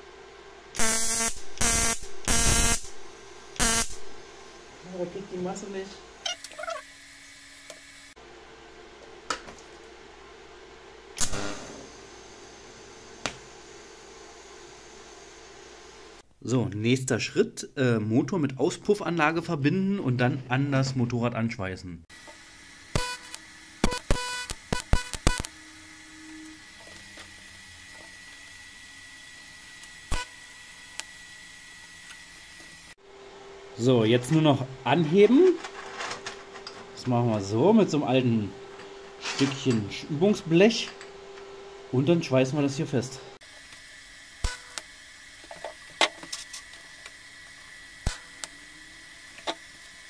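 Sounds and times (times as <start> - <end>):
welding arc buzzing: 0.7 - 8.2, 11.1 - 16.2, 22.1 - 33.0, 43.4 - 50.0
welding arc cracks: 0.8 - 3.0, 3.6 - 4.2, 11.2 - 11.7, 22.9 - 25.6, 43.8 - 45.0, 48.0 - 48.6.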